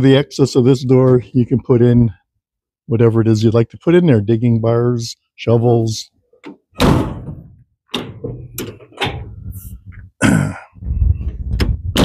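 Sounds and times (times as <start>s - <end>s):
compartment door clunk: 6.4s - 9.3s
latch clicks: 6.4s - 9.4s
metal door thunk: 6.4s - 9.5s.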